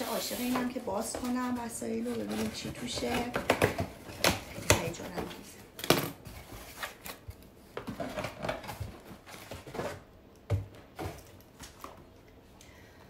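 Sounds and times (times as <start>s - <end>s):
cardboard box rustling and scraping: 0.0s - 3.3s.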